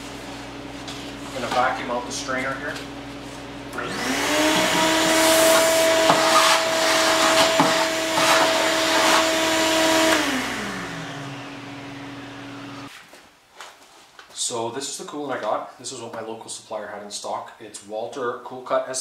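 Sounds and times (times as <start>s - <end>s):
shop vacuum running: 0.0s - 12.9s
vacuum motor spinning down: 3.6s - 12.9s.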